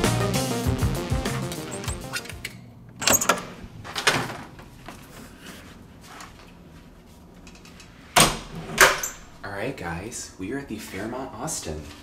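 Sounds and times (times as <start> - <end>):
music: 0.0 - 2.5.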